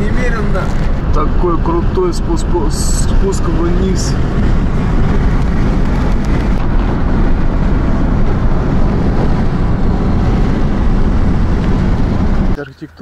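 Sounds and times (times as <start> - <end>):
car engine running: 0.0 - 13.0
tyres on asphalt: 0.0 - 13.0.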